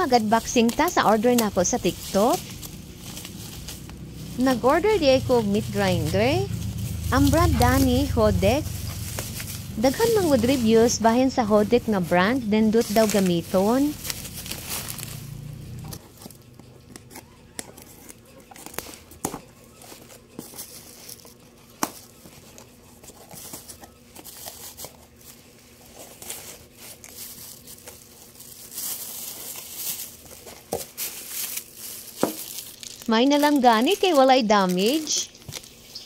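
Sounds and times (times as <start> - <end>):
plastic bags crinkling: 0.0 - 36.0.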